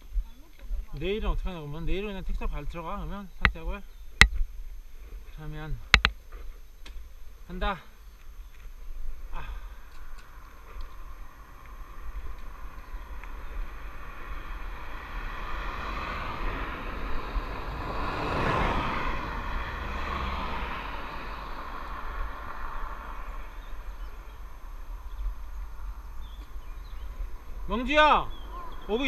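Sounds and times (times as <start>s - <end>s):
wind rumble on microphone: 7.1s - 29.0s
car passing: 7.5s - 29.0s.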